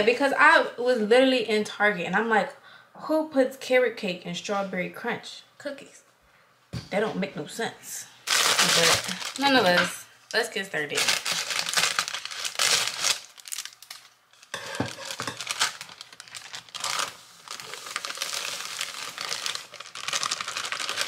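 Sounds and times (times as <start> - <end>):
plastic bag crinkling: 8.2 - 9.9, 10.8 - 21.0.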